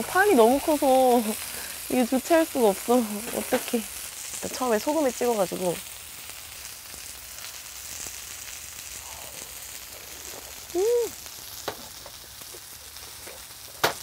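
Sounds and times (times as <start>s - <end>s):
meat and vegetables sizzling: 0.0s - 14.0s
person humming mmm: 9.0s - 9.5s, 10.7s - 11.2s.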